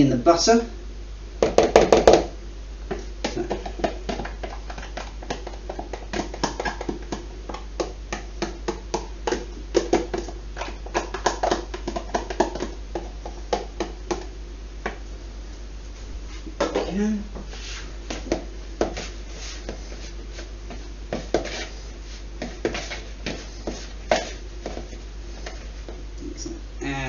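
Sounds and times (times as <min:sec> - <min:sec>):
plastic tub tapping and scraping: 0:02.9 - 0:14.3.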